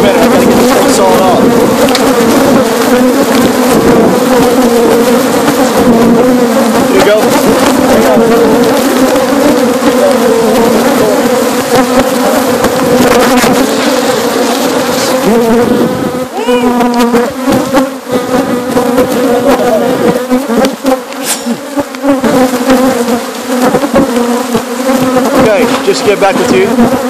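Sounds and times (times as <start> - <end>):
bee flying past whining: 0.0 - 27.0
bees buzzing: 0.0 - 27.0.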